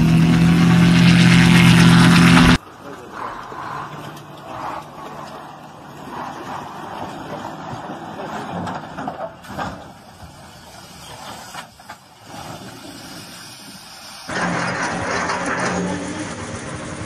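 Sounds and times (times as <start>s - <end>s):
truck engine running: 0.0s - 3.1s
truck crashing onto its side: 8.2s - 10.4s, 14.3s - 17.0s.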